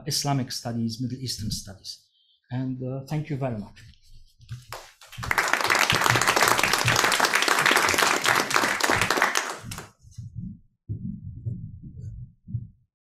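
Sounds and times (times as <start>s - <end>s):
audience applauding: 4.7s - 9.9s.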